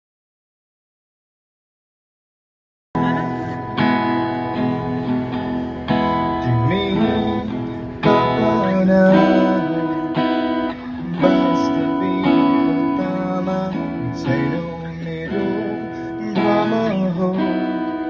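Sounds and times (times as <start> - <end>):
acoustic guitar strumming chords: 3.0 - 18.0
man singing: 6.2 - 18.0.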